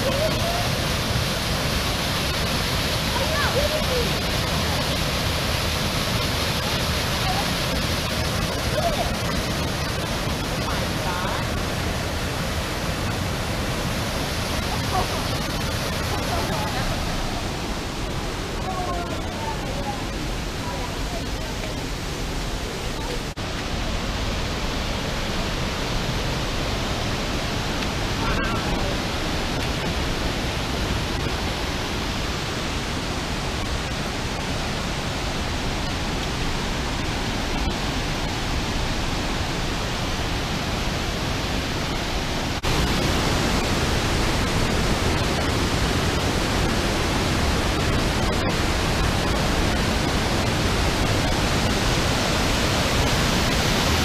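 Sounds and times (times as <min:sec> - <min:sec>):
rushing creek water: 0:00.0 - 0:54.0.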